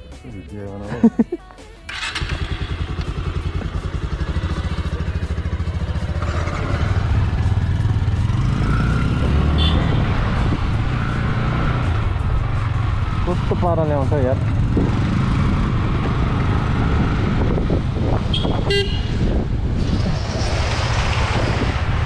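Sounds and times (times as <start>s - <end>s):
motorcycle engine running: 1.9s - 19.8s
wind noise on microphone: 9.0s - 13.2s, 14.5s - 22.0s.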